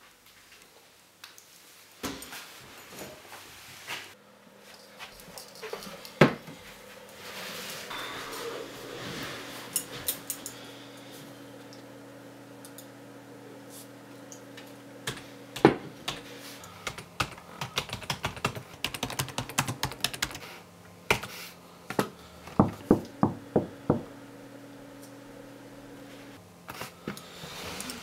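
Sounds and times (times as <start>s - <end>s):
computer keyboard typing: 16.8s - 20.5s.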